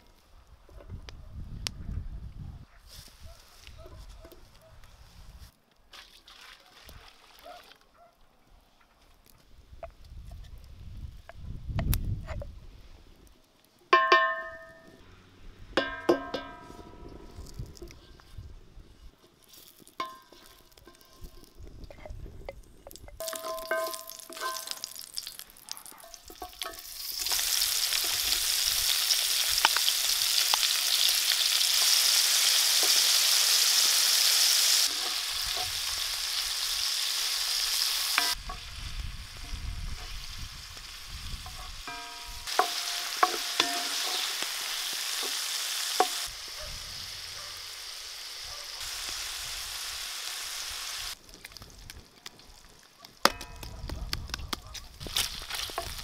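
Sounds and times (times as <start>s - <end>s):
bacon sizzling in a pan: 23.0s - 51.6s
wooden spoon knocking on pan: 23.2s - 24.8s, 41.9s - 44.2s.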